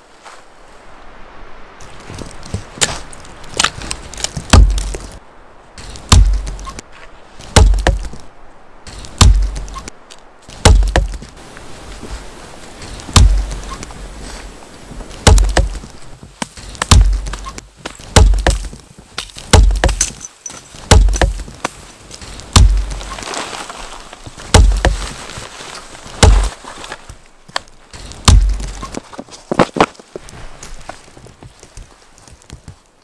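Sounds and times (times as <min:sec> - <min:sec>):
rustling: 0:01.8 - 0:33.0
axe chopping tree trunk: 0:02.8 - 0:05.2, 0:06.0 - 0:06.8, 0:07.4 - 0:08.2, 0:09.0 - 0:09.9, 0:10.5 - 0:11.3, 0:13.1 - 0:13.6, 0:15.2 - 0:20.2, 0:20.8 - 0:21.8, 0:22.5 - 0:23.2, 0:24.5 - 0:25.1, 0:26.2 - 0:26.6, 0:28.2 - 0:29.9.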